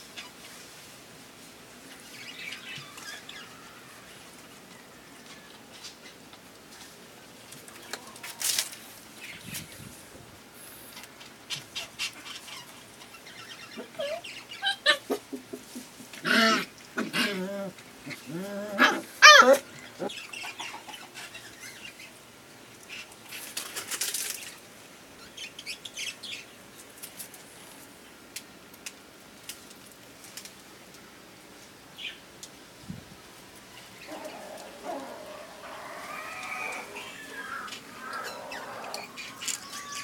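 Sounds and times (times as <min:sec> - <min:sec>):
puppies yelping and squealing: 0:13.7 - 0:15.2, 0:16.4 - 0:20.9, 0:34.0 - 0:40.0.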